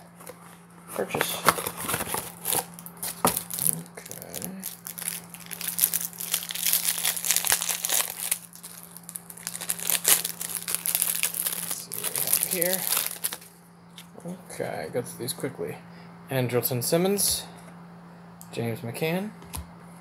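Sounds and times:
faint steady hum: 0:00.0 - 0:20.0
plastic wrapper crinkling and tearing: 0:01.2 - 0:13.5.

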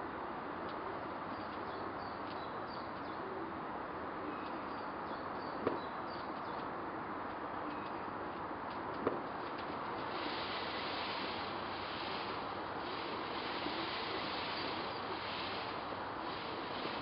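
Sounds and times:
small birds chirping: 0:01.0 - 0:03.2, 0:04.3 - 0:06.8, 0:12.5 - 0:17.0.

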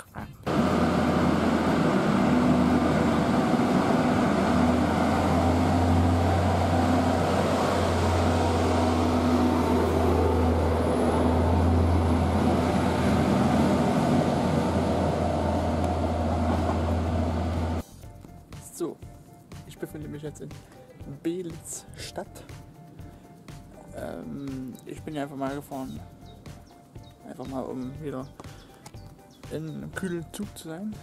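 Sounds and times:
diesel train engine rumble: 0:00.5 - 0:17.9.

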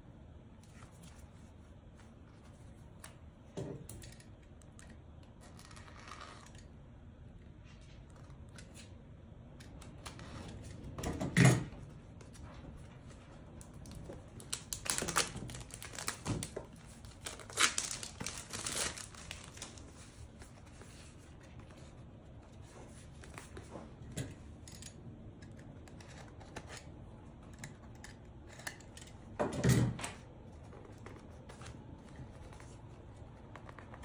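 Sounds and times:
plastic wrap crinkling and tearing: 0:13.6 - 0:20.8.

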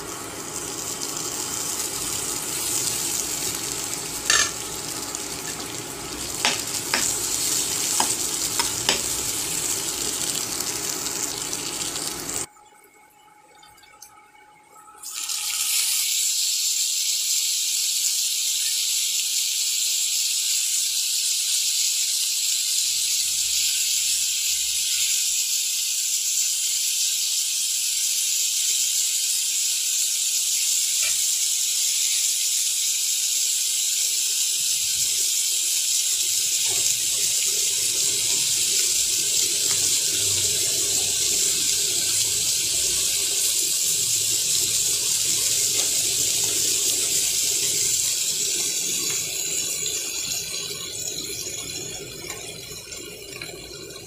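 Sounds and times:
high hiss of frying: 0:00.0 - 0:12.5, 0:15.0 - 0:54.0
onions sizzling in frying pan: 0:00.0 - 0:12.5, 0:15.0 - 0:54.0.

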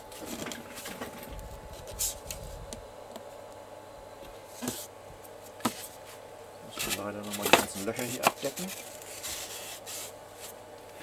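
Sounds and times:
faint steady hum: 0:00.0 - 0:11.0
hands rubbing foam: 0:06.8 - 0:10.6.

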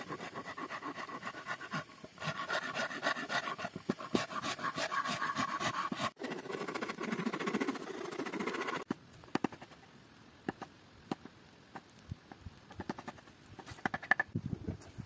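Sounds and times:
gouge scraping wood: 0:00.0 - 0:09.6
campfire crackling: 0:09.0 - 0:14.2.

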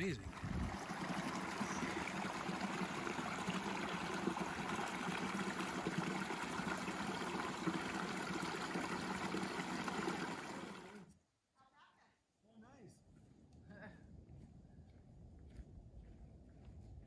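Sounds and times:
creek water running: 0:00.0 - 0:11.1.

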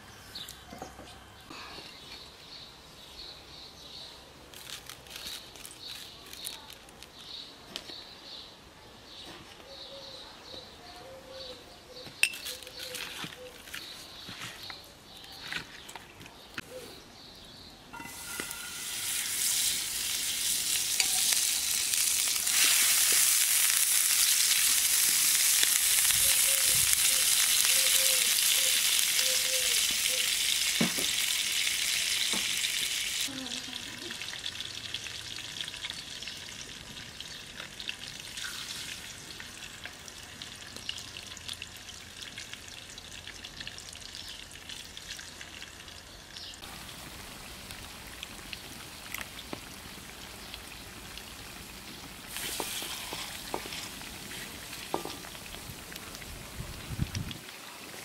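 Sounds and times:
fire crackles: 0:18.0 - 0:45.8, 0:46.6 - 0:58.0
fish sizzling in a pan: 0:18.0 - 0:45.8, 0:46.7 - 0:58.0.

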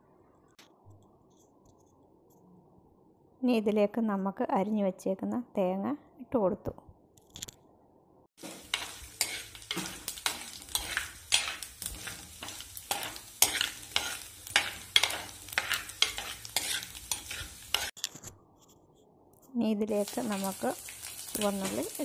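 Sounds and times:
coconut sizzling in hot oil: 0:08.4 - 0:18.0, 0:19.9 - 0:22.0
metal ladle scraping pot: 0:08.7 - 0:17.9.

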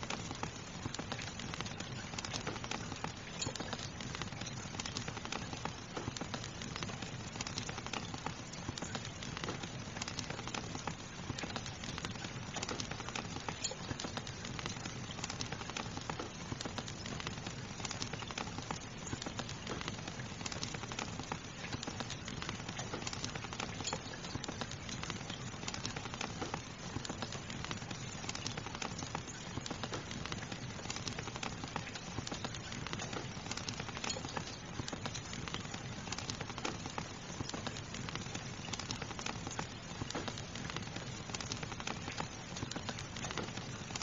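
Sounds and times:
fire crackling and popping: 0:00.0 - 0:44.0
steady rain: 0:00.0 - 0:44.0.

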